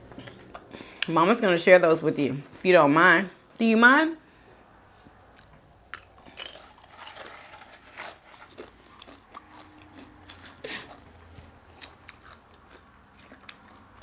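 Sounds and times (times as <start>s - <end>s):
tortilla chips crunching: 5.4s - 14.0s.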